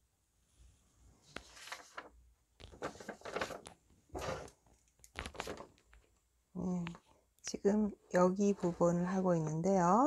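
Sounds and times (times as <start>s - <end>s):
paper rustling and crinkling: 1.2s - 6.1s.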